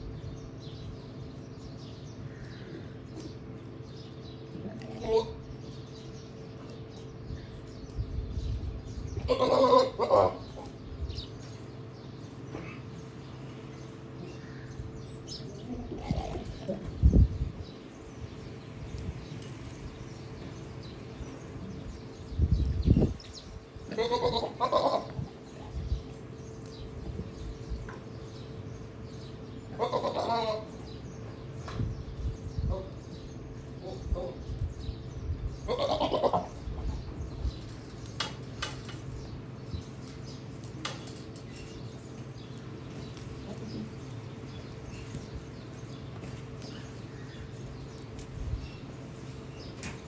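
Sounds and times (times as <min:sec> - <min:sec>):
goat bleating: 0:09.2 - 0:10.5, 0:23.9 - 0:25.2, 0:29.7 - 0:30.7, 0:35.7 - 0:36.6.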